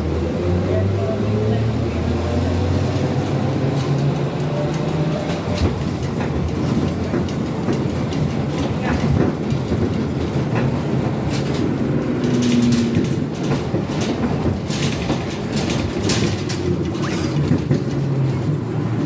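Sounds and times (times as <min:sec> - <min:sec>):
trolleybus running hum: 0:00.0 - 0:19.0
body rattles and knocks: 0:05.2 - 0:18.6.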